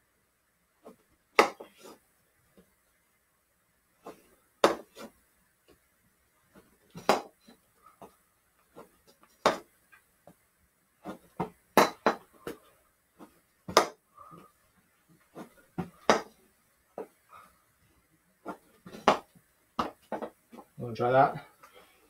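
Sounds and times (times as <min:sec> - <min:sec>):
hockey stick hitting ball: 0:01.4 - 0:01.7, 0:04.1 - 0:05.1, 0:07.0 - 0:07.4, 0:09.4 - 0:09.7, 0:11.0 - 0:12.6, 0:13.7 - 0:14.0, 0:15.4 - 0:16.3, 0:18.5 - 0:20.3.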